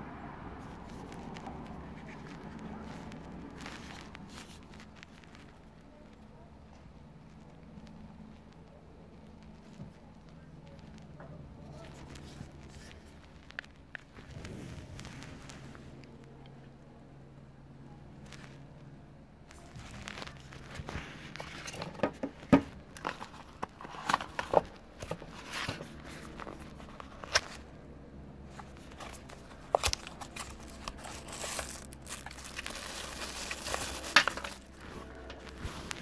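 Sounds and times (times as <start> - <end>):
packaging crinkling: 0.8 - 5.7, 19.5 - 27.7, 28.5 - 36.0.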